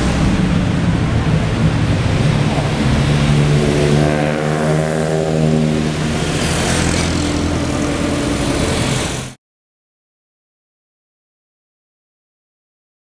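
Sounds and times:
car engine passing by: 0:00.0 - 0:09.4
street traffic: 0:00.0 - 0:09.4.

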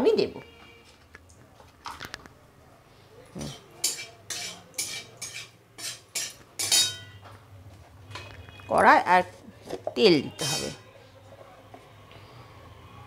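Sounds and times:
metal spatula scraping a pan: 0:03.4 - 0:07.2, 0:10.3 - 0:10.8.

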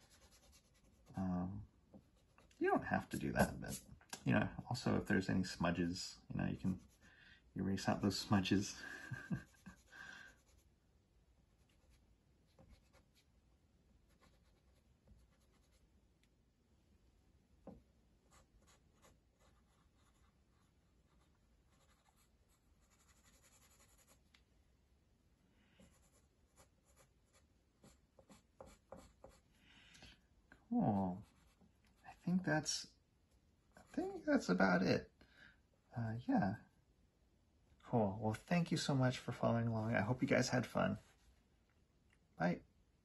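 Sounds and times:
pencil scratching on paper: 0:00.0 - 0:01.2, 0:18.3 - 0:24.2, 0:25.8 - 0:29.4.

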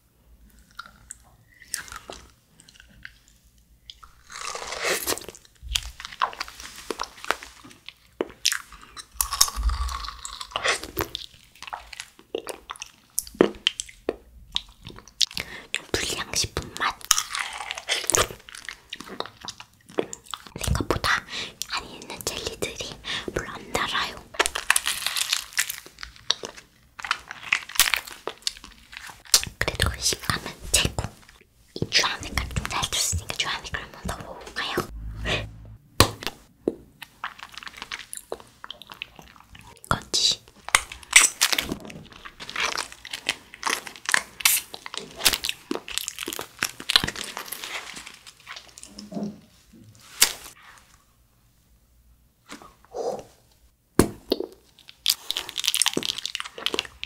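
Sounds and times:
wet sucking and chewing: 0:00.5 - 0:36.4, 0:37.0 - 0:50.9
plastic candy shell crinkling: 0:16.7 - 0:34.8, 0:37.0 - 0:48.9, 0:54.5 - 0:57.0
plastic casing crinkling: 0:40.7 - 0:48.9, 0:54.7 - 0:57.0.

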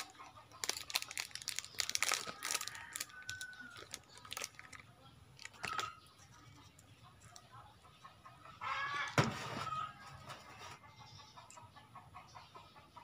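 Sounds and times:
plastic wrapper crinkling: 0:00.0 - 0:06.3.

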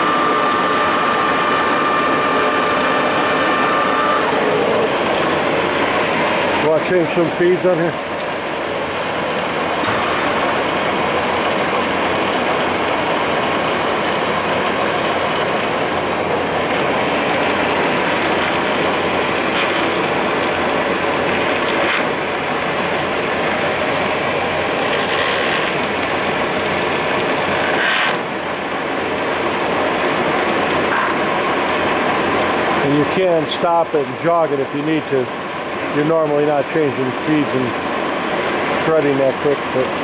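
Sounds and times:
lathe running noise: 0:00.0 - 0:40.0.

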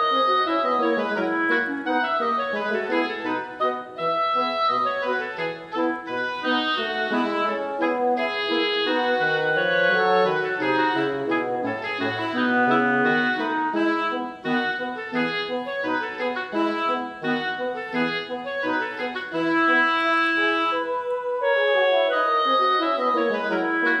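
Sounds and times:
instrumental background music: 0:00.0 - 0:24.0.

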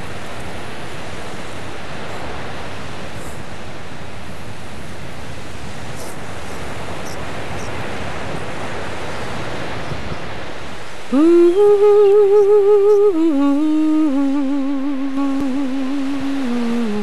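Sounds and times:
surf washing: 0:00.0 - 0:17.0
person humming a melody: 0:11.1 - 0:17.0.

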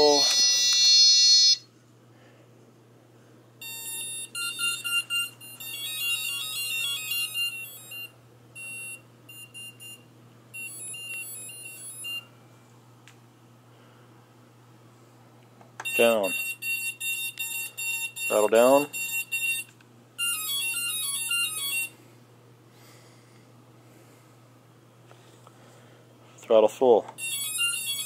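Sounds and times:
electronic beeps from motors: 0:00.0 - 0:01.6, 0:03.6 - 0:12.3, 0:15.8 - 0:21.9, 0:27.2 - 0:28.0.

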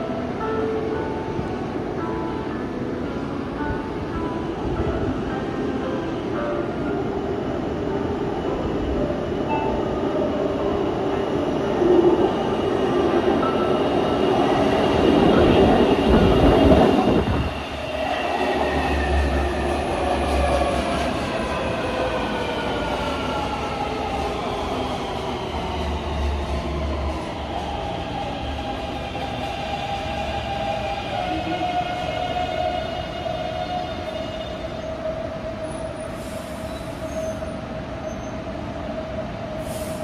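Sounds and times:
train rumble: 0:03.7 - 0:34.2
train braking whine: 0:12.0 - 0:38.5.

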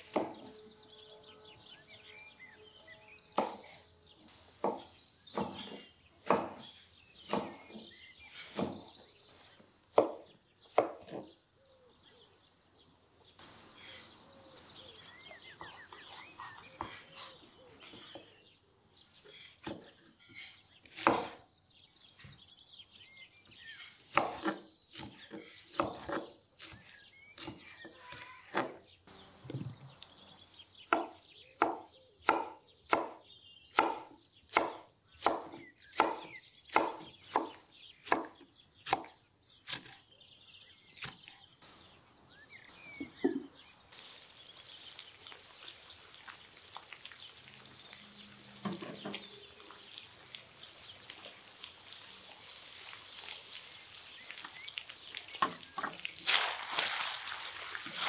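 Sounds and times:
knife chopping on wooden board: 0:00.0 - 0:00.5, 0:03.4 - 0:03.8, 0:04.6 - 0:09.0, 0:09.9 - 0:11.3, 0:19.6 - 0:20.0, 0:20.9 - 0:21.4, 0:24.1 - 0:28.8, 0:30.9 - 0:40.0
meat sizzling in a hot pot: 0:44.0 - 0:58.0.

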